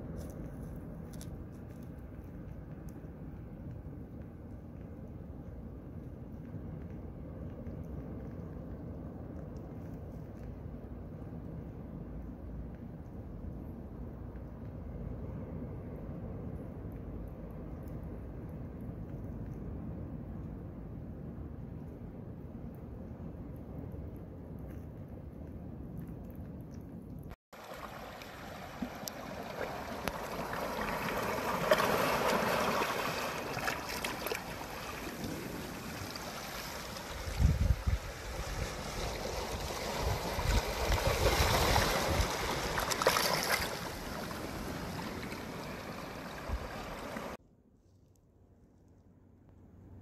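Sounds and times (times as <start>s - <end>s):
sea water surging over rocks: 27.6s - 37.4s, 38.0s - 47.4s
wind buffeting microphone: 29.2s - 47.4s.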